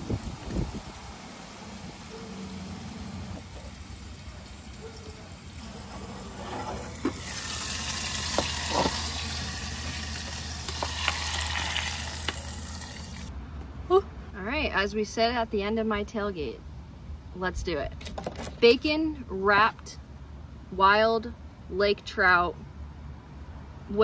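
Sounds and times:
food sizzling in a saucepan: 7.2s - 13.3s.

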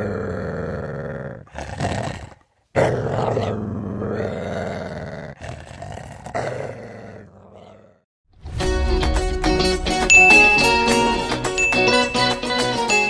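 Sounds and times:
dog growling: 0.0s - 8.1s.

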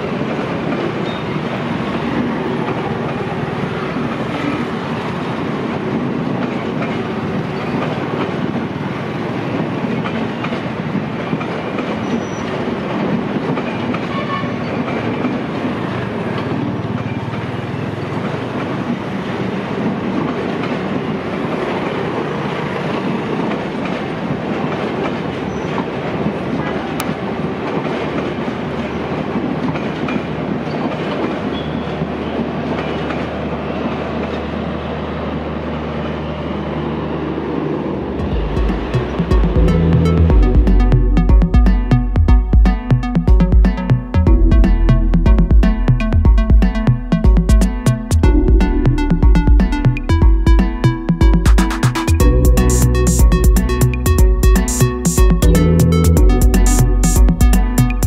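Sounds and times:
train wheels clicking over rail joints: 0.0s - 36.3s.

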